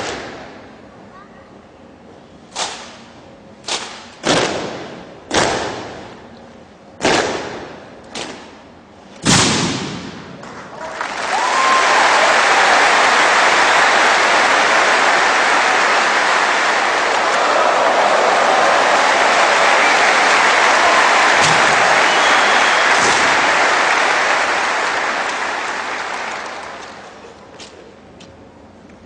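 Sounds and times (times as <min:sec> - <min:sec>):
crowd applauding: 0:10.4 - 0:27.4.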